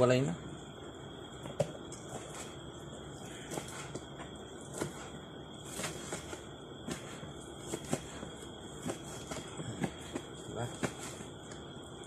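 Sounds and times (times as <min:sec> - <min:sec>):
knives chopping on cutting board: 0:04.7 - 0:05.1, 0:05.7 - 0:08.2.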